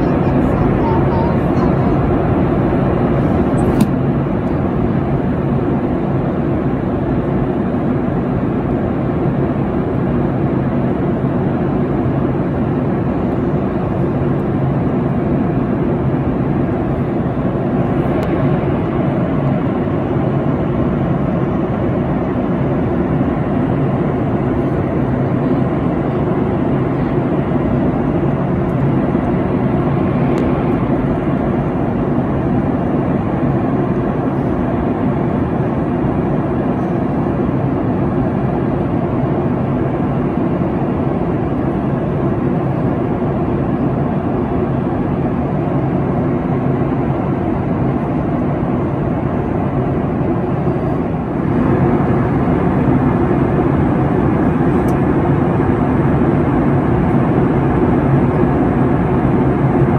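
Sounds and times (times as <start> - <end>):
jet engine and rushing air drone: 0.0 - 59.9
small click: 3.6 - 4.6.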